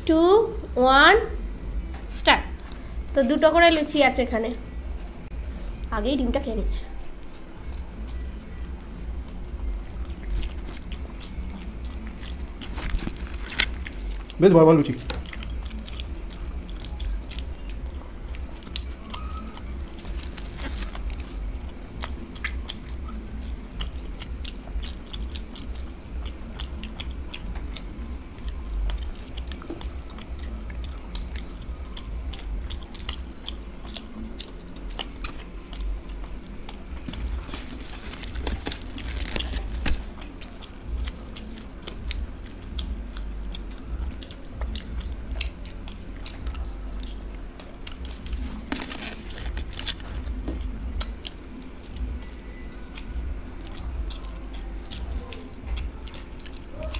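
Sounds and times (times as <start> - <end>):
high-pitched whine: 0.0 - 56.0
chewing: 1.4 - 56.9
fried bread crackling being torn: 10.2 - 14.4, 37.1 - 42.0, 47.9 - 50.5.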